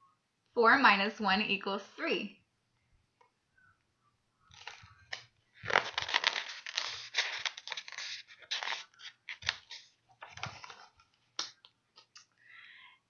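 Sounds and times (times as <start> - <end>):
paper pages rustling: 4.5 - 12.1.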